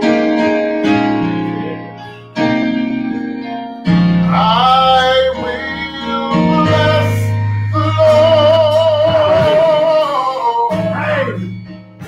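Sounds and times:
keyboard sustained chords: 0.0 - 12.0
person singing: 4.2 - 11.8.

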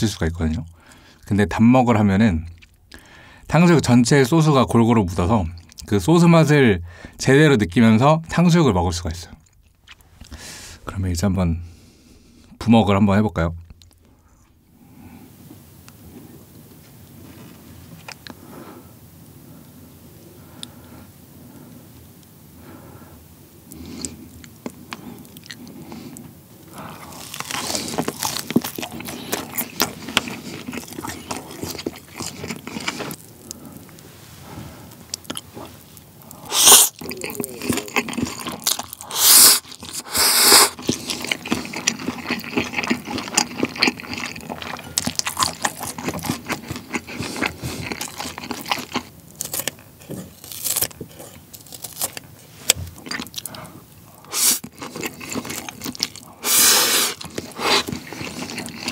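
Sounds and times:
chewing and crunching: 2.4 - 3.1, 9.3 - 10.4, 15.9 - 18.4, 23.7 - 58.9
loud noodle slurps: 36.5 - 43.0, 54.3 - 55.7, 56.3 - 58.9.

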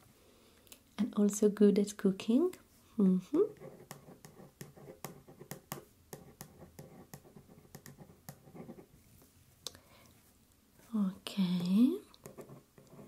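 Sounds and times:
pen writing on paper: 3.5 - 8.9, 12.2 - 13.0.

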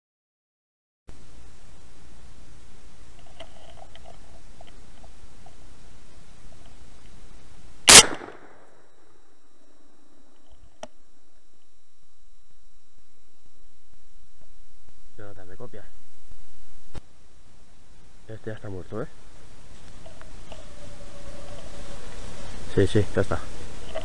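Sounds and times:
steady hiss: 1.1 - 24.0
rifle shot: 7.9 - 8.7.

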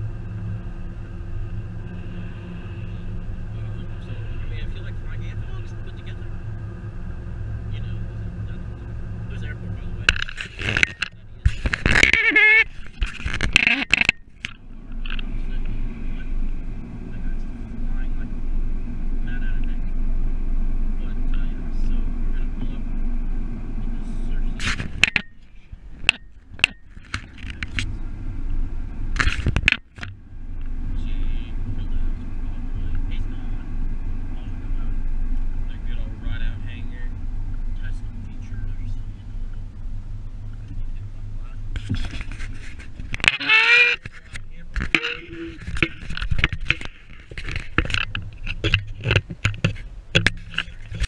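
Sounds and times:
car road rumble: 0.0 - 51.0
low engine hum: 0.0 - 51.0
camera handling scraping: 10.1 - 15.3, 24.6 - 28.0, 29.1 - 30.1, 41.8 - 51.0
knocks and clicks: 44.8 - 51.0.

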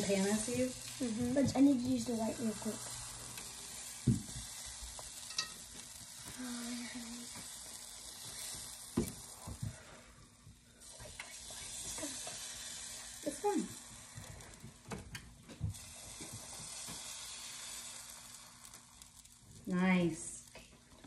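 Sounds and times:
batter sizzling in frying pan: 0.0 - 21.0.

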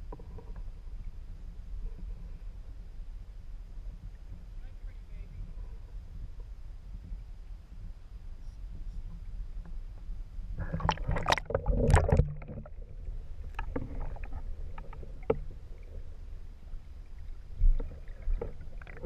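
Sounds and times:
muffled underwater rumble: 0.0 - 19.0
faint underwater clicks: 8.5 - 19.0
water sloshing and splashing: 10.6 - 19.0.

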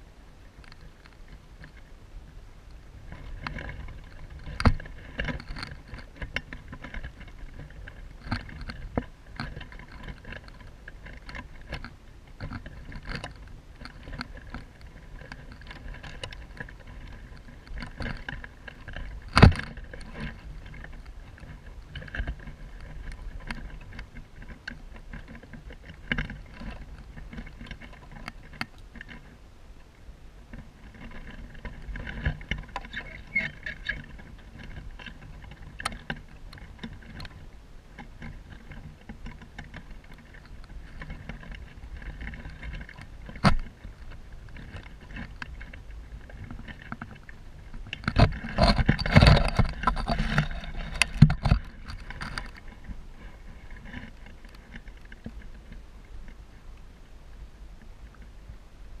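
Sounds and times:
grass rustling: 0.0 - 59.0.

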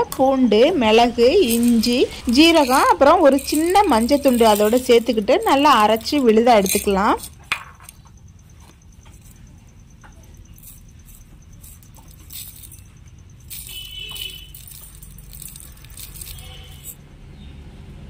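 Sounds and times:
seeds rattling into metal jar: 1.4 - 8.0, 10.4 - 17.0
faint metal clinks: 1.4 - 17.0.

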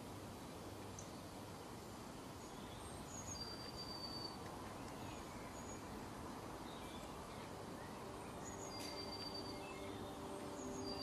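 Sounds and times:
distant songbirds whistling: 2.4 - 11.0.

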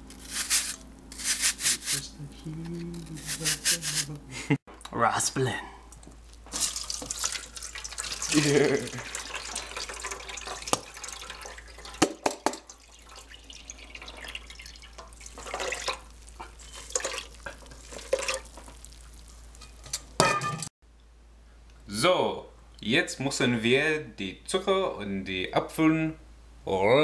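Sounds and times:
shreds rustling and squelching: 0.0 - 4.2, 15.2 - 20.5
juice splashing and dripping: 5.9 - 20.2.

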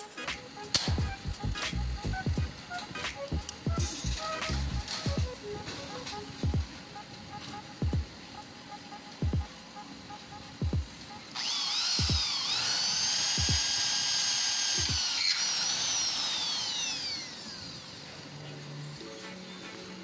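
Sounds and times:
electric drill drilling into steel: 11.1 - 18.2.

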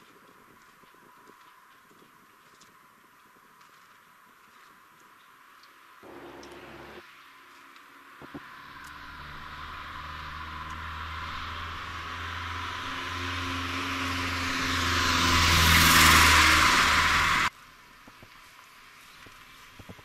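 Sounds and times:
car approaching: 6.0 - 7.0, 8.2 - 17.5.

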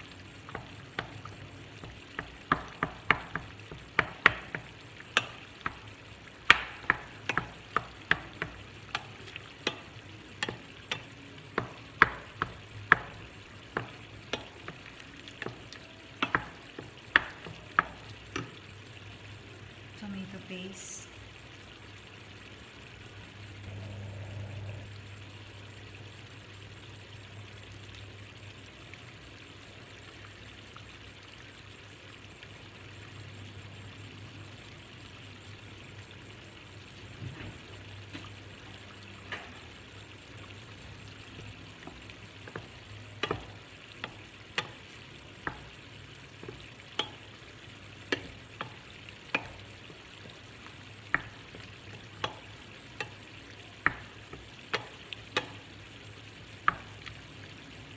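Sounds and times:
sauce sizzling in a pan: 0.0 - 57.9
wooden spoon knocking on a pan: 0.4 - 18.6, 40.8 - 55.8, 56.6 - 57.0.

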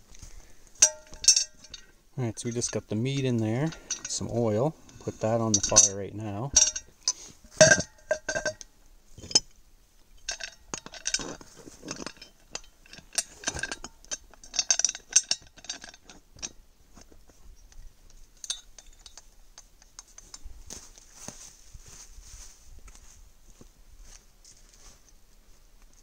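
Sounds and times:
metallic clinks and scrapes: 0.1 - 20.5.

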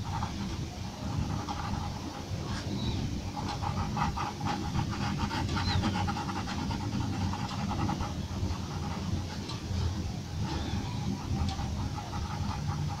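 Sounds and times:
pencil scratching on paper: 0.0 - 2.7, 3.3 - 9.5, 10.5 - 13.0.

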